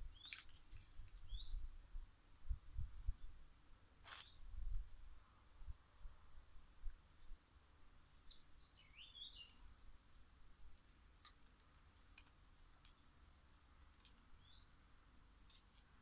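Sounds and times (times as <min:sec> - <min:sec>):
bird chirping: 0:00.0 - 0:01.7, 0:08.2 - 0:09.7, 0:14.0 - 0:14.8.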